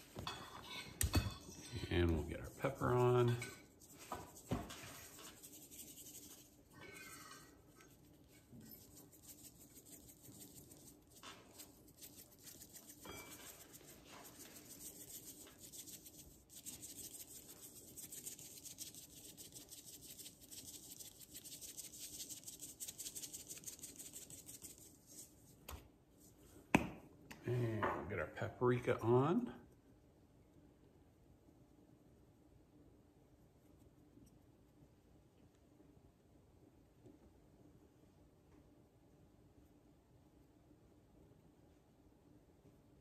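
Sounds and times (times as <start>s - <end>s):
pepper shaker rattling: 2.5s - 7.1s, 8.0s - 25.3s.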